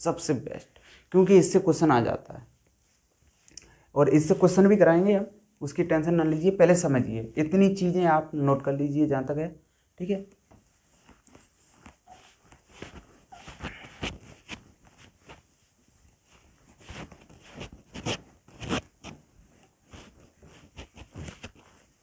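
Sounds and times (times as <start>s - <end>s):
cloth wiping whiteboard: 10.2s - 22.0s.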